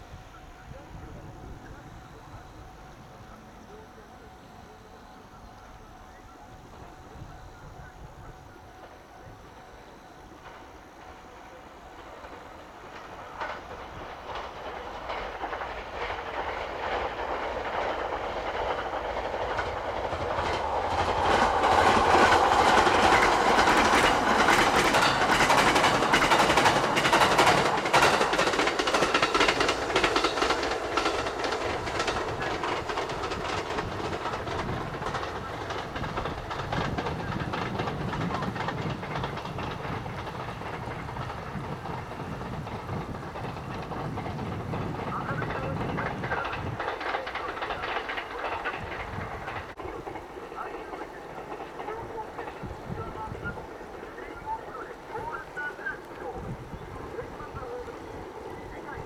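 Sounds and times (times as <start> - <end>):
train passing at speed: 0.0 - 59.0
wheels clattering over rail joints: 12.2 - 59.0.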